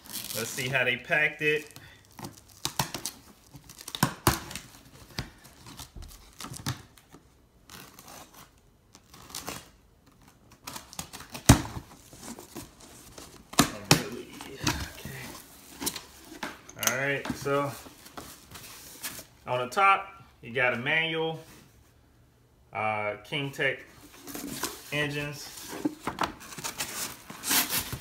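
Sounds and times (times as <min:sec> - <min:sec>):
packing tape tearing: 0:00.0 - 0:00.7, 0:01.6 - 0:17.1, 0:25.7 - 0:28.0
cardboard flaps rustling and cracking: 0:25.5 - 0:28.0.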